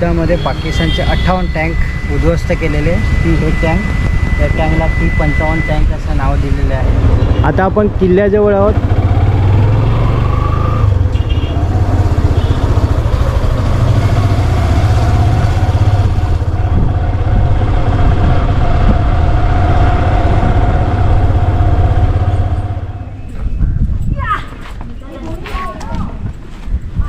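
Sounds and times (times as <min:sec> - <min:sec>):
high engine whine: 0:00.0 - 0:23.7
vehicle engine humming: 0:00.0 - 0:23.9.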